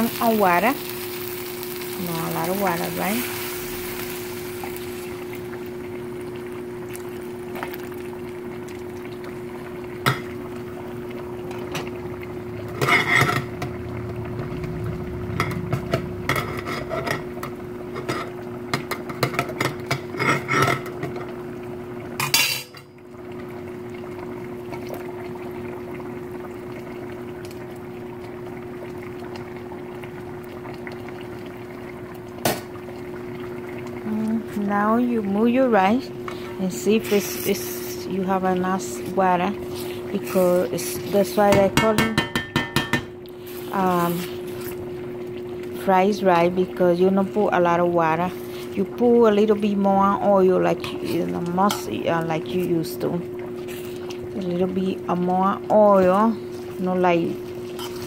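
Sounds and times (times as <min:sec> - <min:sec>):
metal spoon scraping a metal pot: 0:12.8 - 0:13.5, 0:20.2 - 0:20.8, 0:57.7 - 0:58.0.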